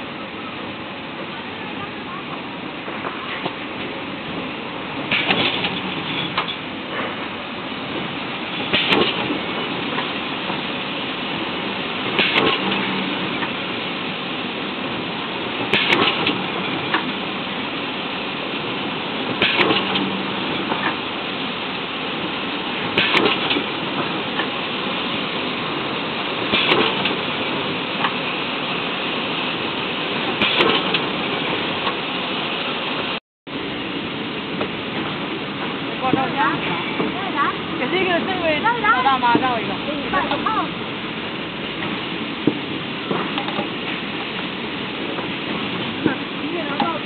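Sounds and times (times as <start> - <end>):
machine clattering bursts: 5.0 - 6.6, 8.6 - 10.1, 12.0 - 13.6, 15.5 - 17.2, 19.3 - 21.0, 22.8 - 24.5, 26.4 - 28.2, 30.3 - 32.0.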